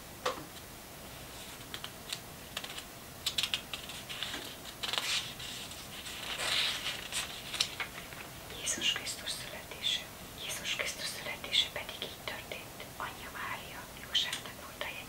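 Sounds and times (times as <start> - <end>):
paper rustling: 1.1 - 8.3
fingertips tapping on book pages: 1.7 - 8.2.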